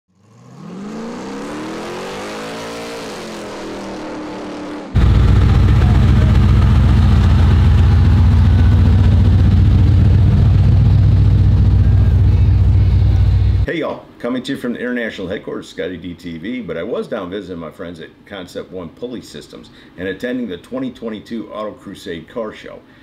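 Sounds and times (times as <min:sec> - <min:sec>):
engine revving: 0:00.1 - 0:13.7
truck engine deep rumble: 0:05.0 - 0:13.7.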